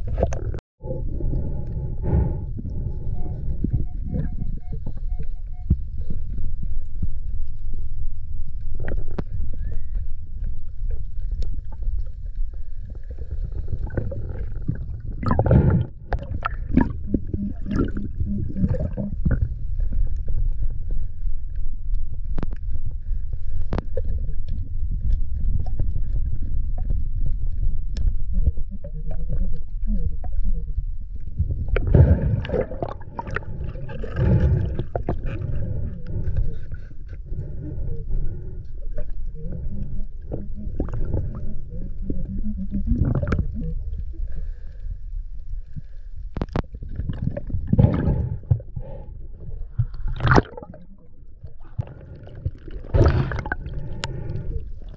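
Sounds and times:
water gurgling and bubbling: 0.0 - 6.2, 12.8 - 20.8, 23.7 - 44.6, 46.5 - 54.9
muffled underwater rumble: 0.0 - 54.9.

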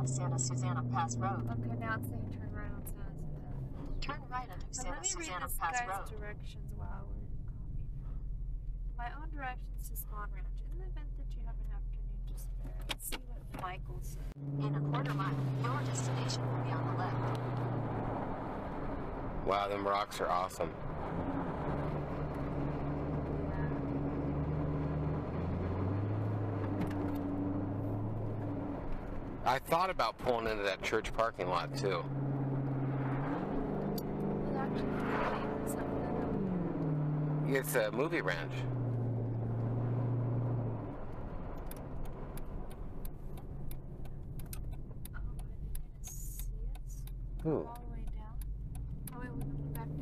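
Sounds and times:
car engine and tyre noise: 0.0 - 50.0
road noise: 0.0 - 50.0
light clicks and ticks: 41.1 - 50.0.

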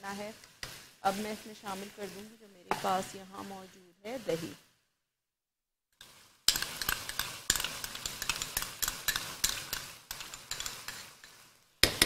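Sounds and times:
meat sizzling: 0.0 - 4.6, 6.0 - 12.0
metal spoon scraping a pan: 6.0 - 12.0.

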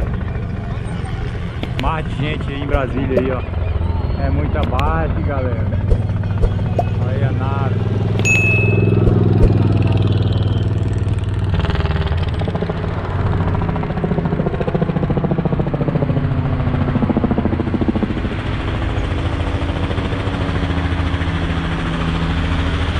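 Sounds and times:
motorcycle engine: 0.0 - 15.6
helicopter rotor beating: 0.0 - 22.9.

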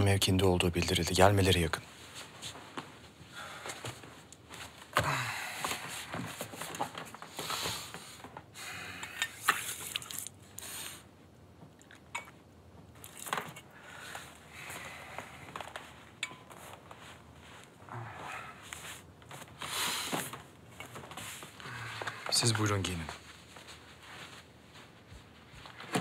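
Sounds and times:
bedcovers rustling: 1.4 - 8.6, 12.5 - 26.0.

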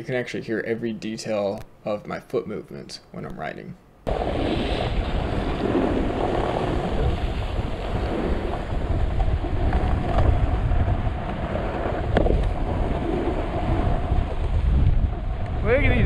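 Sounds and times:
snowboard scraping over snow: 4.1 - 16.0.

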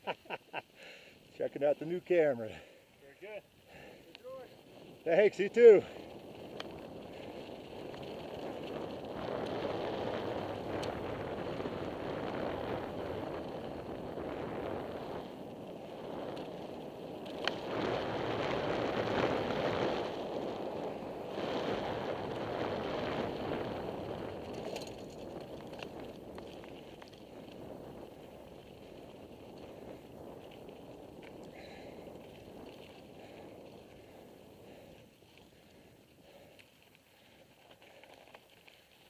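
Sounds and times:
bicycle tyres rolling on gravel: 0.1 - 39.0
bike clicks and rattles: 3.7 - 39.0
wind on microphone: 4.7 - 35.0.

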